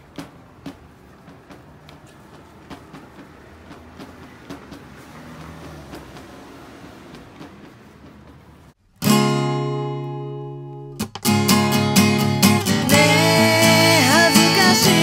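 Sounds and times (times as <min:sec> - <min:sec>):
acoustic guitar strumming: 0:08.8 - 0:15.0
woman singing: 0:12.8 - 0:15.0.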